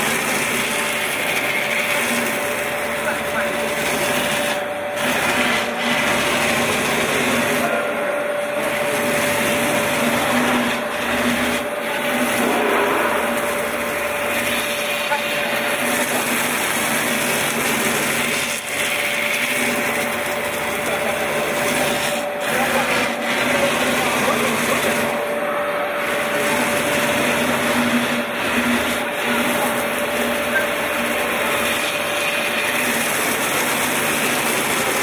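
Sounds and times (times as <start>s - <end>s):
router spindle whining: 0.0s - 35.0s.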